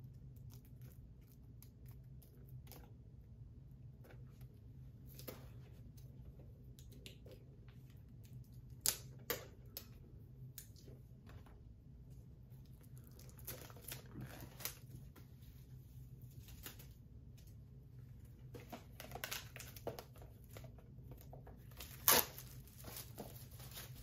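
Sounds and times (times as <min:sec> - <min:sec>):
plastic packaging crinkling: 0:12.9 - 0:15.0, 0:18.6 - 0:24.0.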